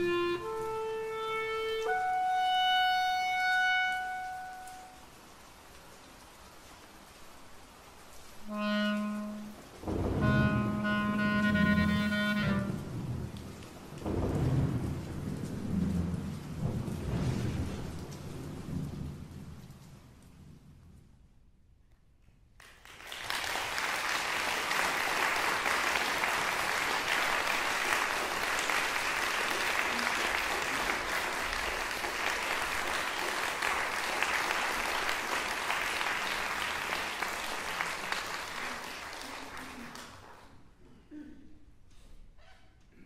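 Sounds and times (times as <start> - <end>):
audience applauding: 22.5 - 40.7.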